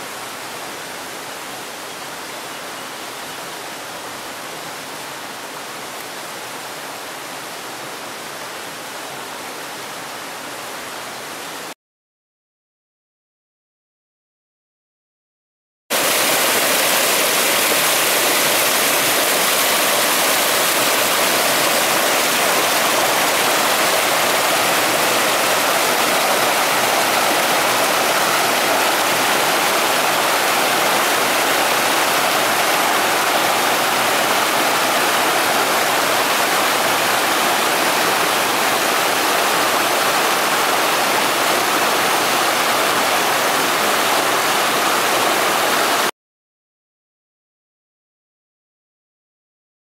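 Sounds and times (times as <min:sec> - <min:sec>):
stream waterfall rushing: 0:00.0 - 0:11.8, 0:15.9 - 0:46.1.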